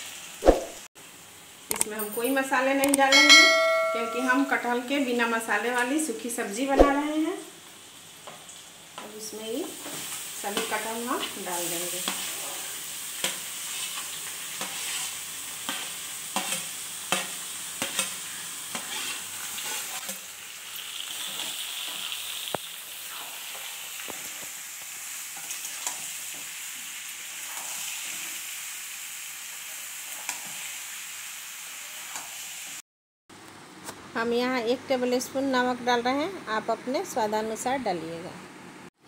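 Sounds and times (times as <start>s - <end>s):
food sizzling in oil: 0.0s - 32.8s
metal spatula scraping pan: 13.6s - 15.8s, 17.8s - 20.1s.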